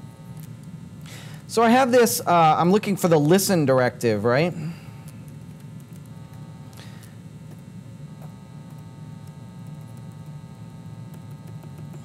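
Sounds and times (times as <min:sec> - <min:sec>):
low steady hum: 0:00.0 - 0:12.0
laptop keys tapping: 0:07.5 - 0:12.0.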